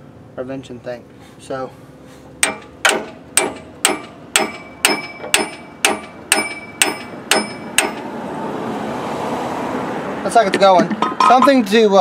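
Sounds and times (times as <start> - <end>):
hammer striking metal gear: 2.4 - 8.1.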